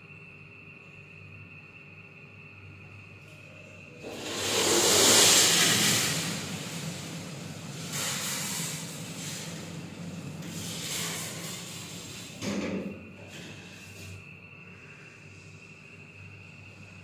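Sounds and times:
lift steady low hum: 0:00.0 - 0:12.4
hissing rushes of noise: 0:04.0 - 0:12.4
lift doors closing thud: 0:05.6 - 0:13.0.

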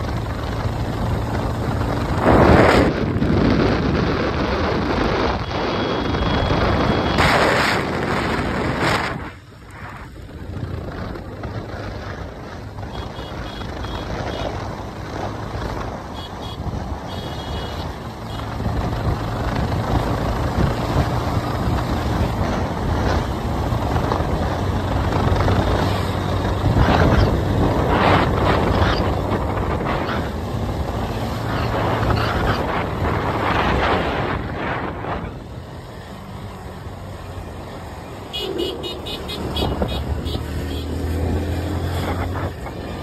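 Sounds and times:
wind rushing over microphone: 0:00.0 - 0:43.0
short high beeps: 0:05.4 - 0:07.3
motorcycle engine running: 0:10.1 - 0:43.0.

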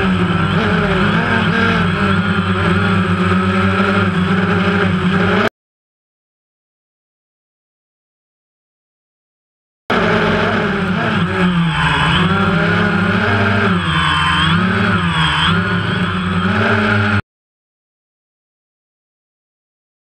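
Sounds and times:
drone propellers whining: 0:00.0 - 0:05.5, 0:09.9 - 0:17.2.

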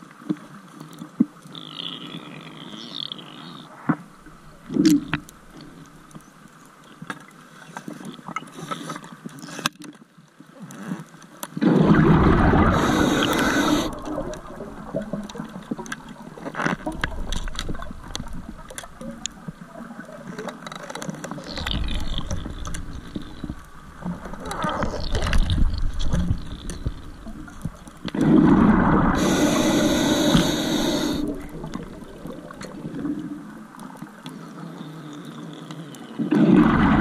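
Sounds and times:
faint underwater clicks and crackles: 0:00.0 - 0:37.0
diver's exhaled bubbles rushing: 0:11.6 - 0:18.7, 0:28.2 - 0:33.2, 0:36.3 - 0:37.0
low underwater rumble: 0:11.7 - 0:19.9.

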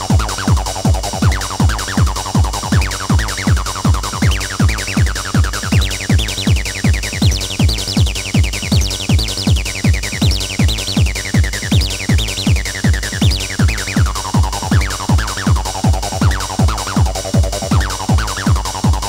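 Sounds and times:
kick drum beat: 0:00.0 - 0:19.0.

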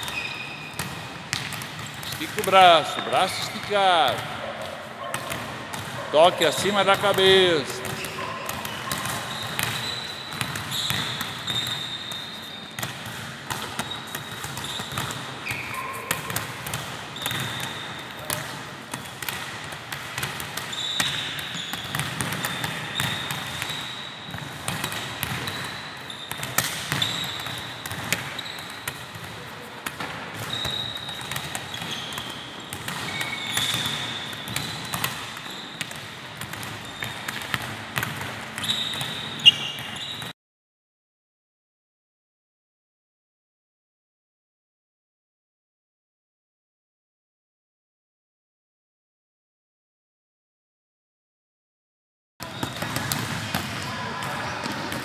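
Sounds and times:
sneaker squeaks: 0:00.0 - 0:19.3, 0:20.6 - 0:37.5, 0:38.5 - 0:40.4, 0:52.4 - 0:53.2.

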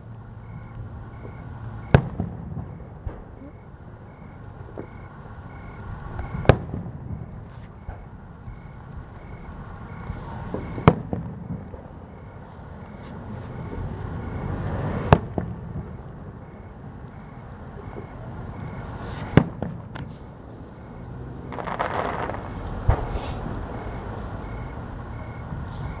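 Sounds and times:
faint firework report: 0:00.0 - 0:26.0
firework booms: 0:01.2 - 0:05.1, 0:05.7 - 0:12.5, 0:13.6 - 0:26.0
low rumble: 0:20.3 - 0:26.0.

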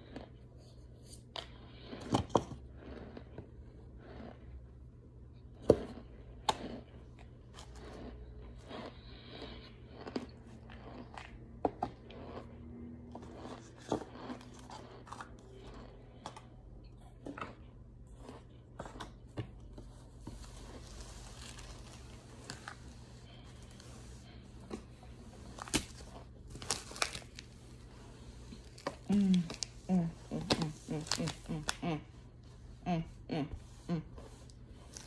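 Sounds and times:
chalky chunks crunching: 0:05.6 - 0:31.9.

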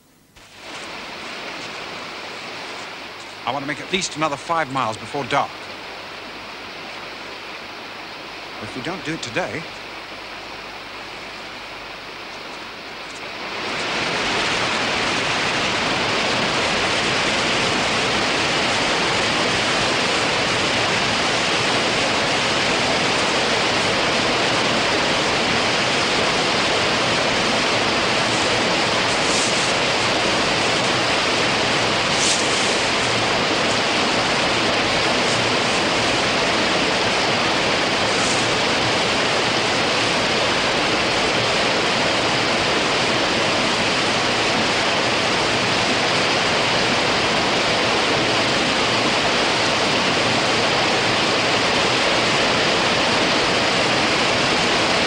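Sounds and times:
river rapids rushing: 0:11.6 - 0:55.0.

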